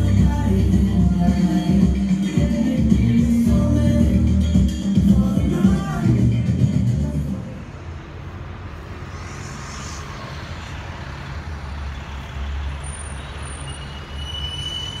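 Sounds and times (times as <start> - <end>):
faint high whine: 8.2 - 12.4
short hiss: 9.0 - 11.2.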